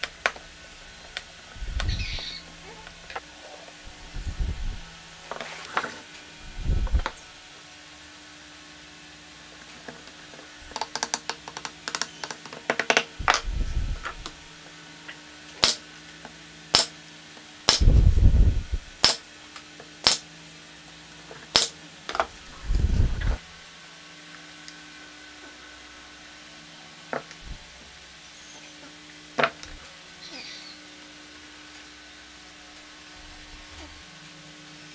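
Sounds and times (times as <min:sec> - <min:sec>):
nail gun firing: 0:15.6 - 0:15.8, 0:16.7 - 0:16.9, 0:19.0 - 0:19.2, 0:20.0 - 0:20.2, 0:21.5 - 0:21.7.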